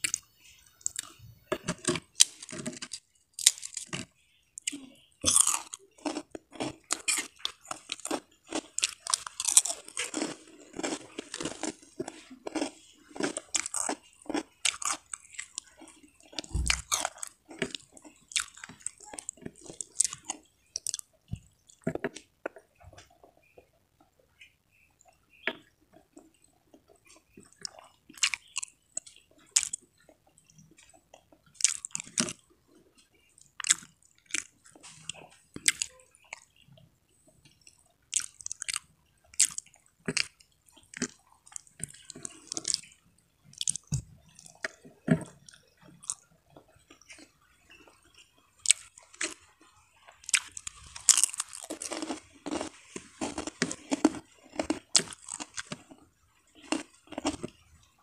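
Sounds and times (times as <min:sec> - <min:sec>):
person chewing food: 0:00.0 - 0:58.0
wet mouth sounds: 0:04.6 - 0:23.2
crisp crunches: 0:05.2 - 0:15.6, 0:50.3 - 0:55.9.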